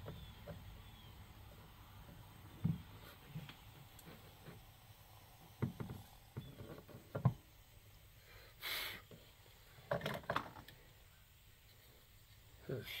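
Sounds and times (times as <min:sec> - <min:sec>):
short gas hiss: 0:08.1 - 0:09.4
stove handling knocks and clicks: 0:09.9 - 0:10.7.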